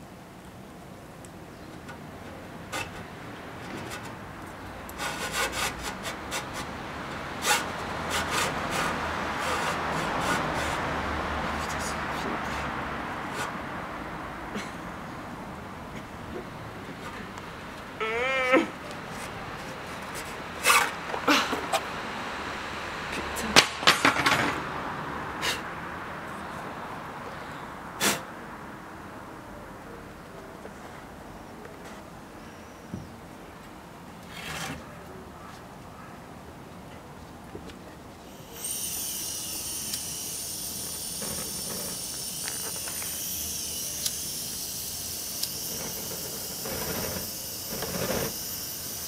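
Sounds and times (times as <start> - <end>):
steady background noise: 0.0 - 49.0
gas torch hissing: 38.3 - 49.0.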